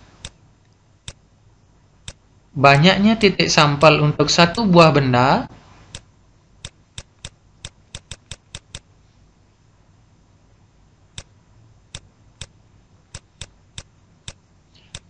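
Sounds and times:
mouse button clicking: 6.6s - 8.8s.

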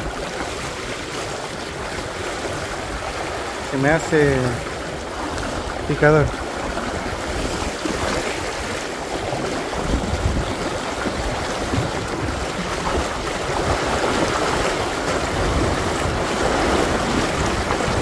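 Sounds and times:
river water rushing: 0.0s - 18.0s.

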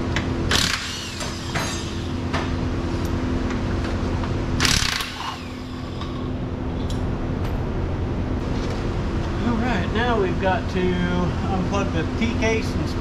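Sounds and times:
steady mechanical hum: 0.0s - 13.0s
power tool whirring: 0.5s - 2.2s, 4.6s - 6.2s.

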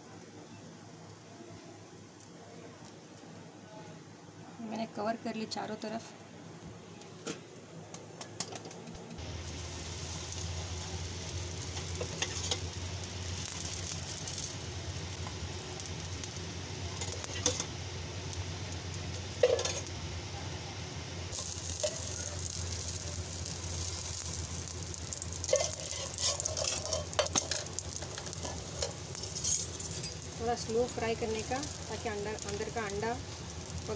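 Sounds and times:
food sizzling in oil: 9.2s - 33.9s.

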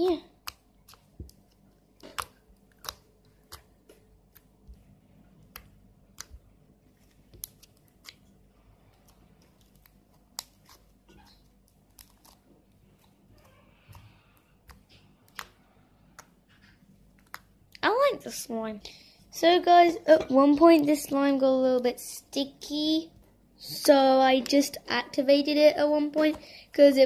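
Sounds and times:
slime crackling and popping: 0.0s - 17.8s.

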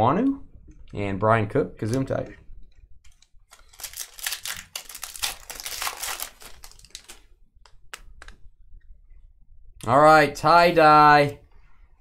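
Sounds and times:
foil wrapper crackling: 3.5s - 7.3s.

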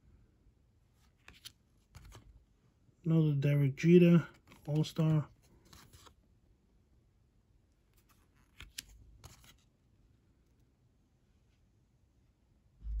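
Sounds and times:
trading cards handled and flipped: 0.9s - 2.5s, 4.1s - 6.2s, 7.8s - 9.8s.

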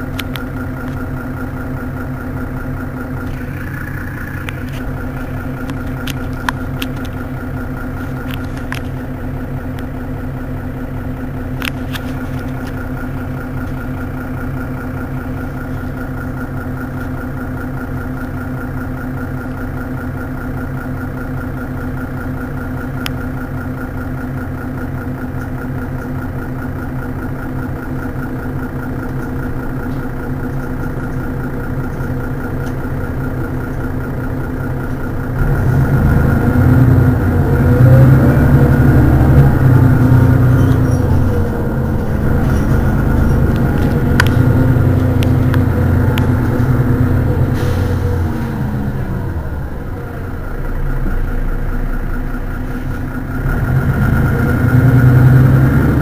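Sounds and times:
constant hum: 0.0s - 55.0s
bus diesel engine idling: 0.0s - 56.0s
deep rumble: 0.1s - 16.5s, 27.8s - 56.0s.

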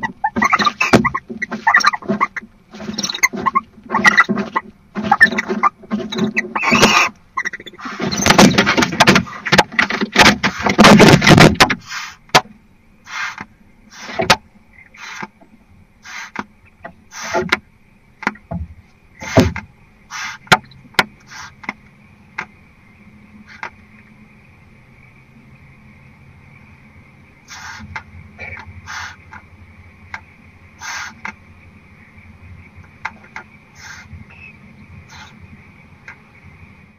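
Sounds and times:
owl hissing calls: 0.0s - 8.3s, 11.8s - 12.3s, 13.0s - 15.3s, 16.0s - 16.4s, 17.1s - 17.5s, 19.2s - 19.5s, 20.1s - 20.5s, 21.2s - 21.7s, 23.4s - 23.7s, 27.4s - 29.4s, 30.8s - 31.4s, 33.7s - 35.4s
owls scuffling: 0.0s - 12.2s, 27.5s - 29.5s, 32.7s - 35.4s.

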